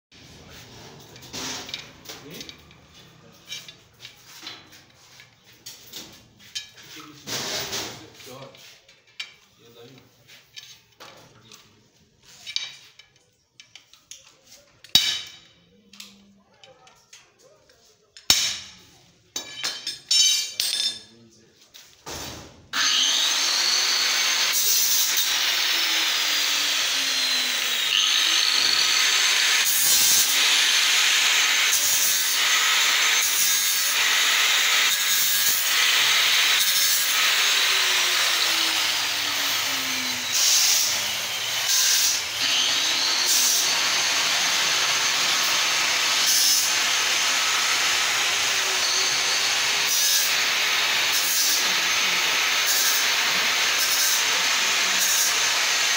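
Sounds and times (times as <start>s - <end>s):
angle grinder grinding steel: 22.8s - 55.9s.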